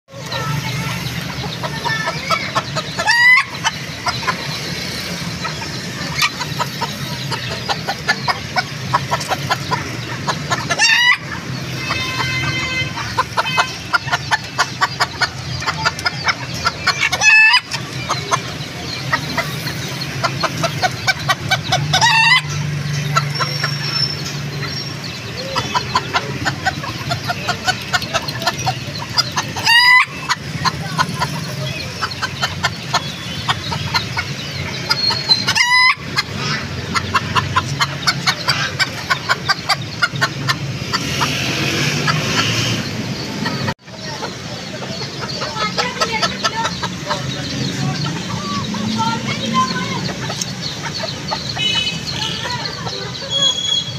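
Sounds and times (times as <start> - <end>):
chickens clucking: 0.1 - 53.9.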